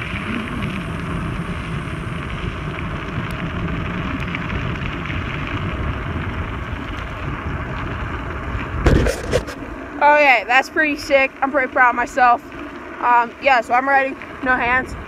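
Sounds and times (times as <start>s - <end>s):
wind on microphone: 0.0s - 9.8s
bicycle tyres rolling on gravel: 0.0s - 15.0s.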